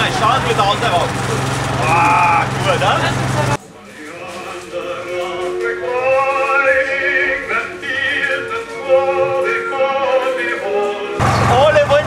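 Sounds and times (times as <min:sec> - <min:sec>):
person singing operatic melody: 0:04.2 - 0:11.2.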